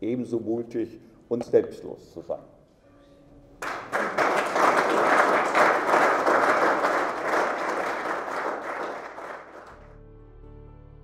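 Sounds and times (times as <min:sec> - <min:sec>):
audience applauding: 0:03.6 - 0:09.9.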